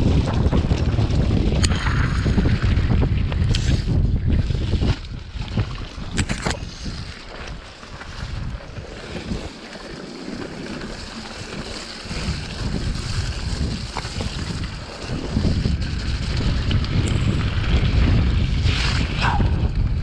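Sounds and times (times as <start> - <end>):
bike tyres rumbling on dirt: 0.0 - 20.0
wind buffeting microphone: 0.0 - 20.0.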